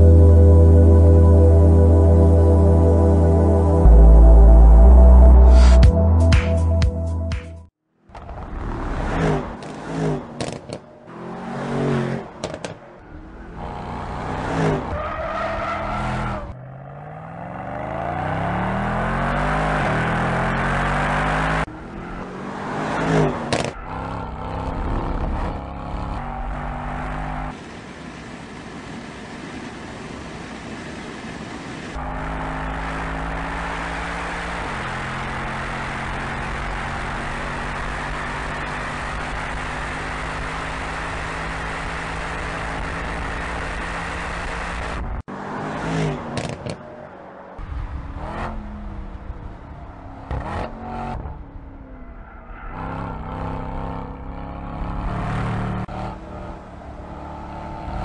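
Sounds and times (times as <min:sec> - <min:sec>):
car engine revving: 0:08.2 - 0:27.6, 0:32.0 - 0:58.0.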